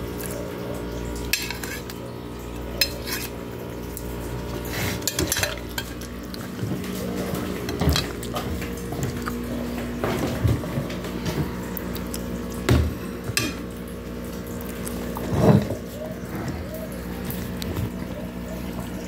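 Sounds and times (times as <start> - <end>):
steady low hum: 0.0 - 19.0
dog eating from a plate: 4.2 - 12.4.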